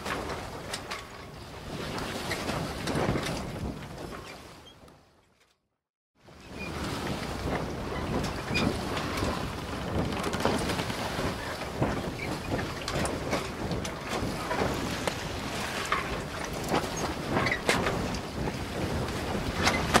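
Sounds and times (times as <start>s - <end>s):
wind buffeting microphone: 0.0s - 4.9s, 6.2s - 20.0s
water moving along hull: 0.0s - 5.4s, 6.2s - 20.0s.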